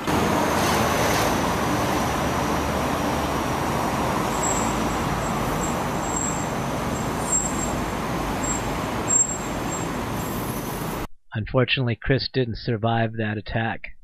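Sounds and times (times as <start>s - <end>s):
city street traffic: 0.0s - 11.1s.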